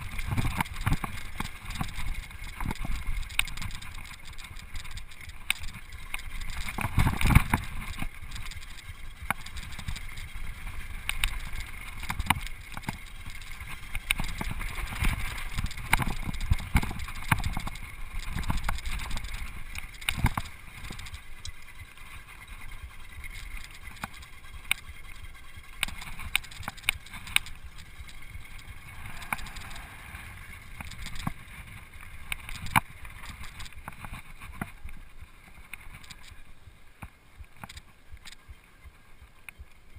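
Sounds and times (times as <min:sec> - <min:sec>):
chain and suspension rattling: 0:00.0 - 0:36.4
wind rumble on microphone: 0:00.0 - 0:36.5
bike tyres crunching on gravel: 0:00.0 - 0:36.7.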